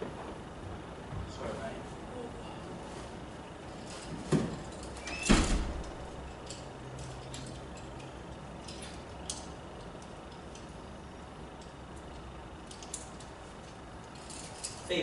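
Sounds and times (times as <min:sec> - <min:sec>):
door thudding in a hall: 0:04.3 - 0:06.0
faint clicks and rustles: 0:11.5 - 0:15.0.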